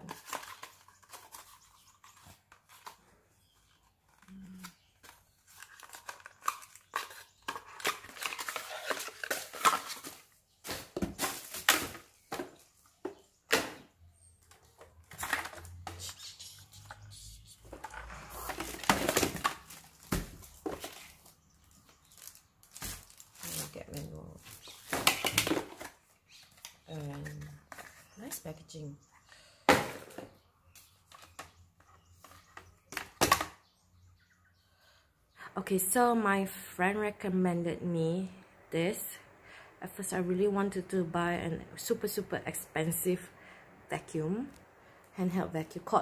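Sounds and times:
plastic packaging crinkling: 18.3 - 25.7.

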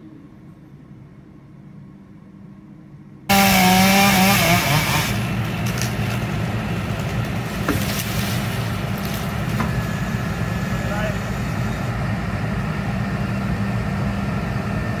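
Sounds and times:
chainsaw cutting wood: 3.3 - 9.9.

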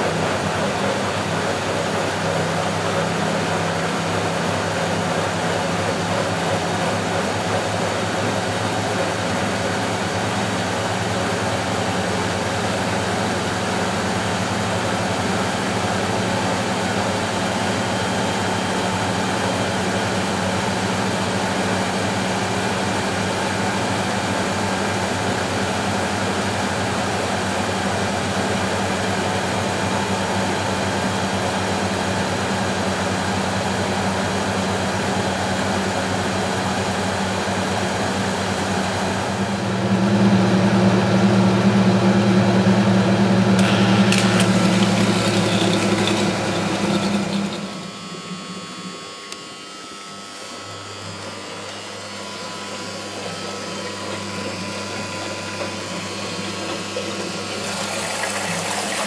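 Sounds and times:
washing machine hum: 0.0 - 59.0
louder second hum: 41.5 - 55.4.

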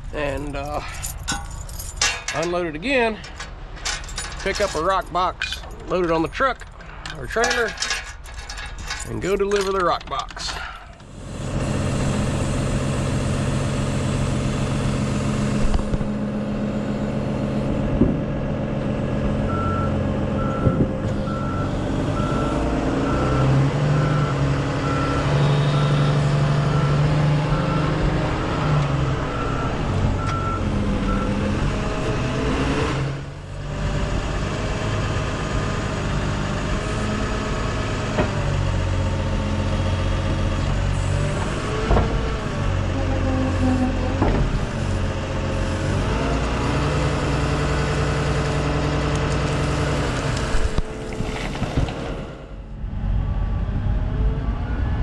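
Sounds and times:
heavy diesel engine running: 10.4 - 54.3.

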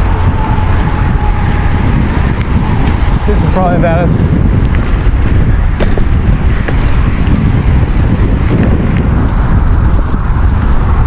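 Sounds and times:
tyres rumbling on dirt trail: 0.0 - 11.0
wind buffeting microphone: 0.0 - 11.0
bike knocking over bumps: 4.7 - 10.1.

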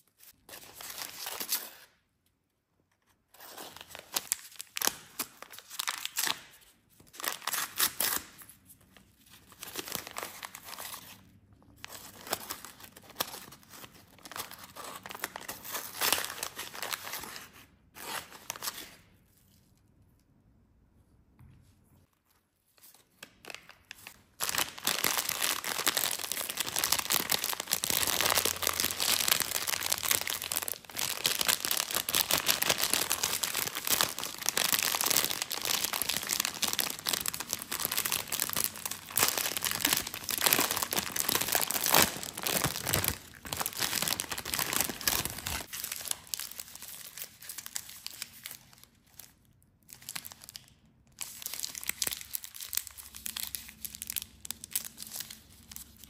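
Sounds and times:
plastic packaging crinkling: 23.3 - 49.3.

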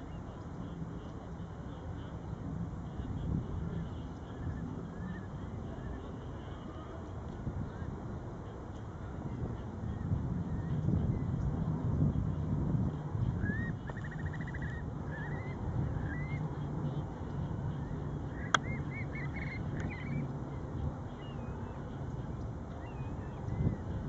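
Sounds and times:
birds chirping and trilling: 13.4 - 16.5, 17.8 - 20.3.

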